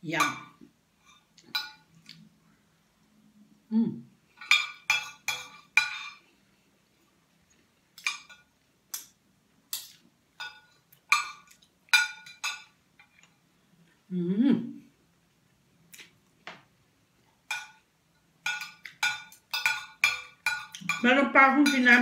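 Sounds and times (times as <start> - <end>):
cutlery clinking on a plate: 1.4 - 1.9, 4.4 - 6.2, 9.8 - 13.3, 17.5 - 17.8, 18.4 - 22.0.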